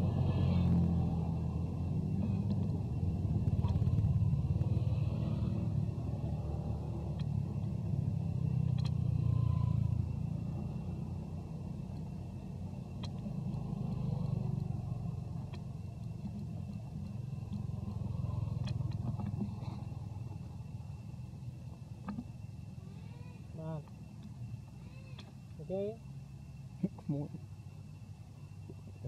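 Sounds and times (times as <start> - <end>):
motorbikes and traffic passing: 0.0 - 24.0
faint clicks: 7.0 - 7.4, 8.6 - 9.0, 15.4 - 20.0, 23.8 - 25.6.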